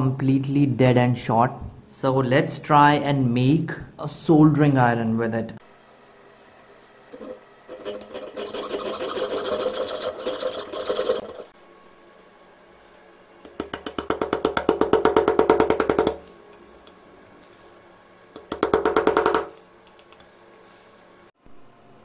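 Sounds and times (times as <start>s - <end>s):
file rasping: 7.2s - 11.5s
hacksaw cutting brass: 7.2s - 11.5s.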